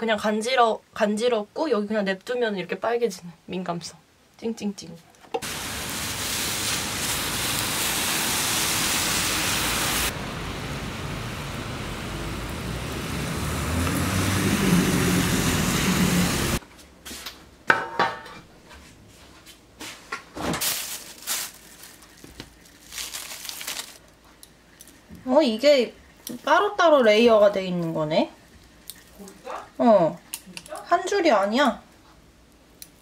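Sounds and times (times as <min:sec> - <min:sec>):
rain hissing on wet street: 0:05.4 - 0:16.6
plastic wrap crinkling: 0:20.6 - 0:25.0.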